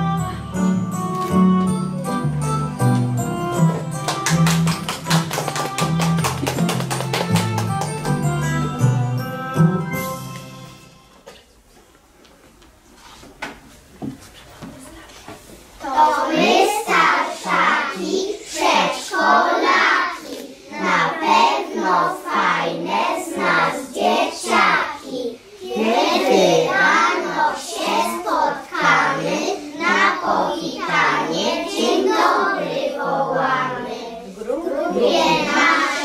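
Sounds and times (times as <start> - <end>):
children singing in unison: 15.8 - 36.0.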